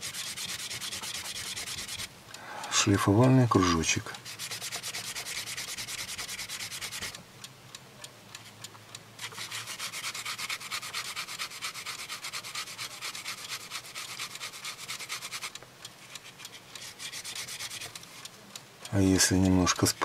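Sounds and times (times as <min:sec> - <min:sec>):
screw rubbing on abrasive disc: 0:00.0 - 0:02.1, 0:03.5 - 0:07.2, 0:09.2 - 0:18.3, 0:19.0 - 0:20.0.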